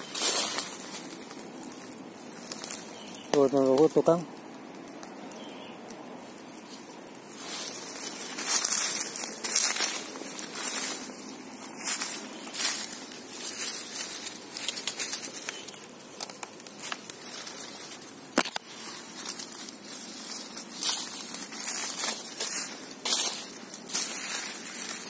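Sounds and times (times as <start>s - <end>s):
footsteps in dry leaf litter: 0.0s - 4.3s, 6.2s - 25.0s
sharp crack: 18.3s - 18.7s.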